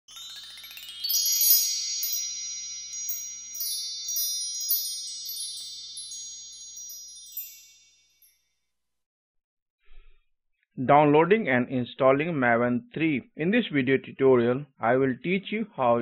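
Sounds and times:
shimmering chime effect: 0.0s - 8.5s.

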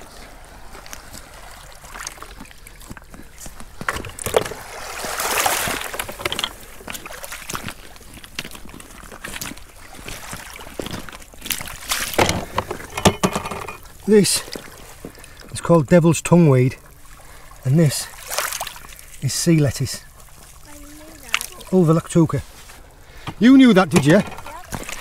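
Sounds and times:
seawater sloshing among rocks: 0.0s - 13.0s, 13.8s - 15.7s, 16.5s - 25.0s
clicks and knocks: 12.2s - 13.8s.

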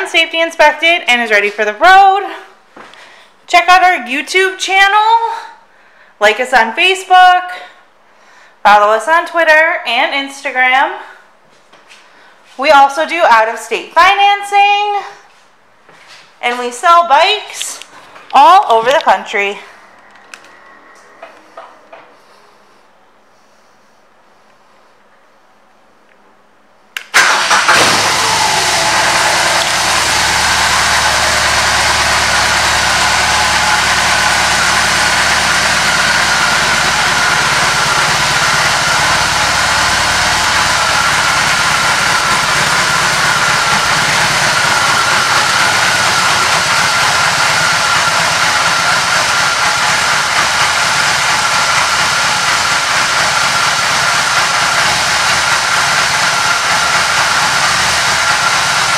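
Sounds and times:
motorcycle engine starting and idling: 27.0s - 58.9s.

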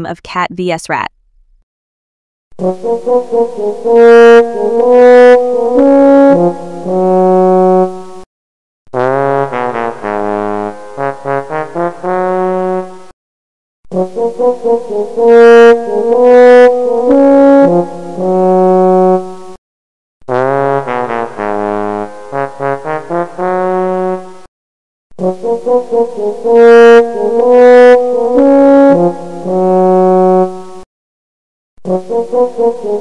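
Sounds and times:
background music melody: 26.0s - 30.6s.

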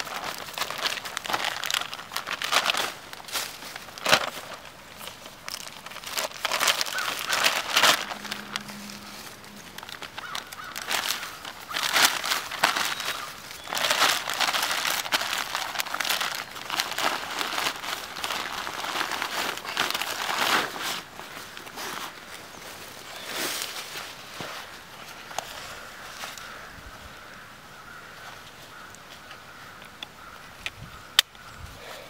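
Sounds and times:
pack being handled: 0.0s - 26.5s
dry leaves crunching underfoot: 0.0s - 30.4s.

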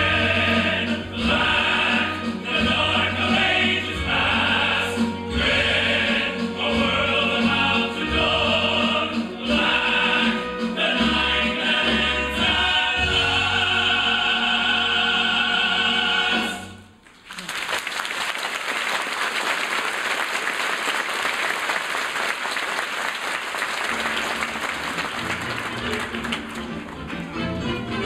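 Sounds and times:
male chorus and orchestra chord: 0.0s - 16.8s
audience applause: 17.0s - 27.4s.

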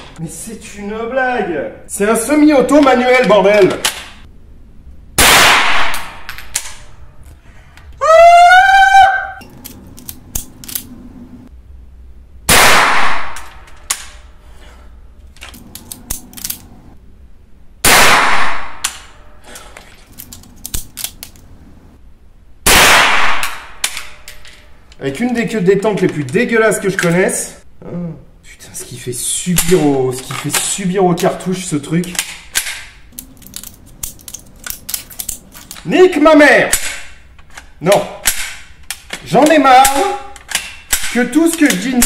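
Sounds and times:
rifle shots with echo: 5.2s - 6.3s, 12.5s - 13.4s, 17.8s - 18.8s, 22.7s - 23.8s
high-pitched rising cry: 8.0s - 9.4s
rifle action clicking: 9.5s - 10.9s, 15.4s - 16.7s, 20.1s - 21.4s.

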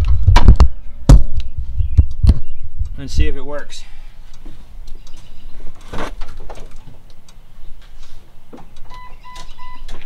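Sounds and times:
dashboard warning beeps: 8.8s - 10.0s.

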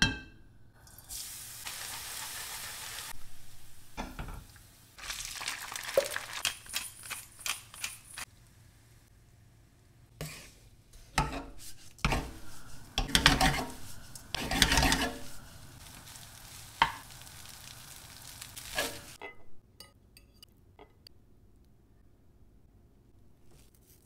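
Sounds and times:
steady sizzle: 0.7s - 19.2s
wooden spatula scraping frying pan: 10.2s - 19.2s.

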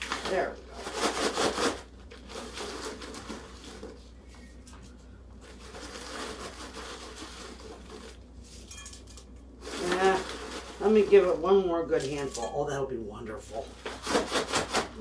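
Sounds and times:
plastic bag crinkling: 0.0s - 4.0s, 5.4s - 8.7s, 9.6s - 12.3s.

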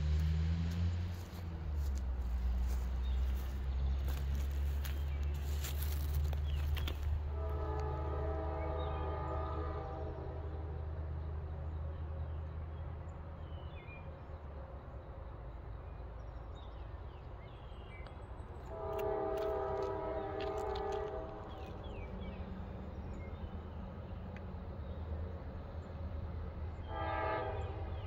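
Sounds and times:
train diesel engines rumbling: 0.0s - 28.0s
locomotive horn chord: 7.2s - 11.0s, 18.6s - 22.4s, 26.7s - 28.0s.

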